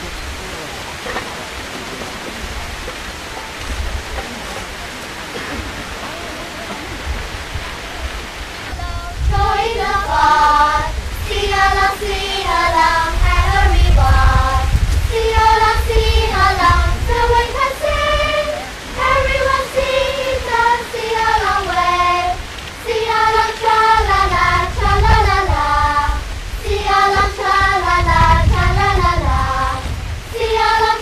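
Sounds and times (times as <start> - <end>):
children singing in unison: 8.7 - 31.0.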